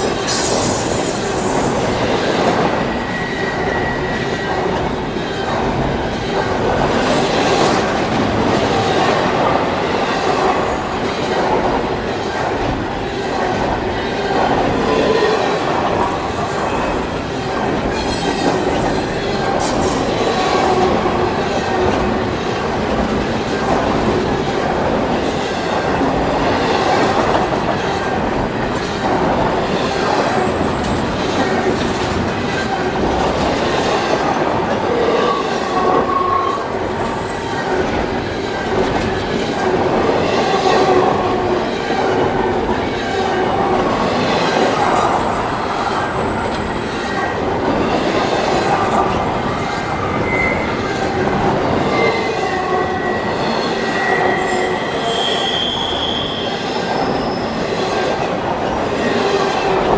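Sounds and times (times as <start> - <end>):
steel wheels on rail: 0.0 - 59.9
high-pitched wheel squeals: 2.8 - 4.5, 49.6 - 57.6.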